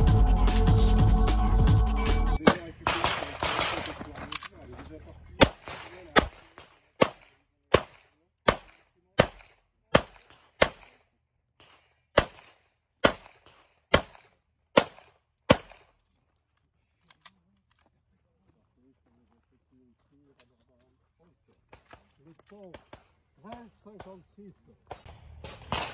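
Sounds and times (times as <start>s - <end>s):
pistol shots: 2.4s - 4.3s, 5.4s - 15.9s, 21.7s - 25.9s.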